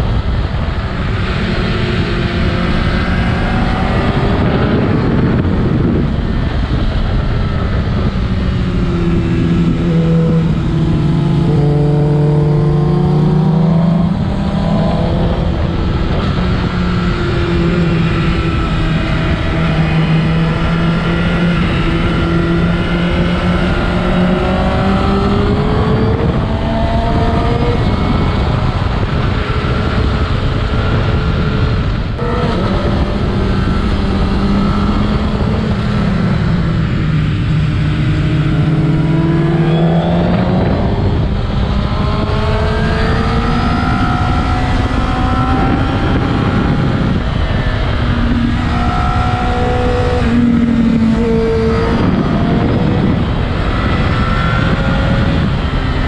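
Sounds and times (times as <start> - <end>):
motorcycle engine revving: 0.0 - 56.0
wind noise: 0.0 - 56.0.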